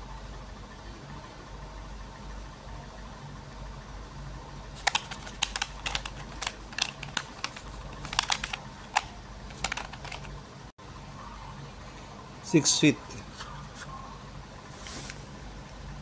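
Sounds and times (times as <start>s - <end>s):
plastic clicks and crackles: 4.8s - 10.3s
plastic container handled: 4.8s - 10.3s.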